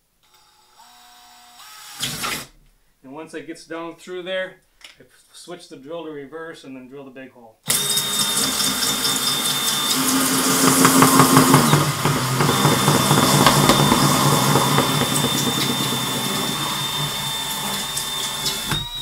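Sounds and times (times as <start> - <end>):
cordless drill motor whine: 0.2 - 2.1, 7.7 - 19.0
hole saw scraping plastic: 7.7 - 19.0.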